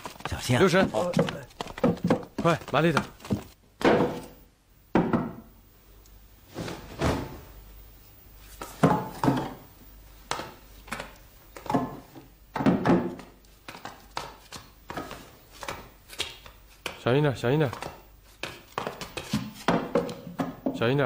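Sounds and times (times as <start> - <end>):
heavy loads thudding on wood: 0.7 - 4.4.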